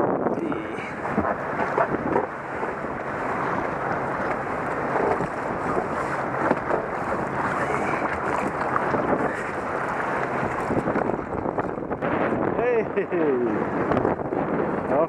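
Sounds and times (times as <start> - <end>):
water slapping kayak hull: 0.0 - 15.0
wind buffeting microphone: 0.0 - 15.0.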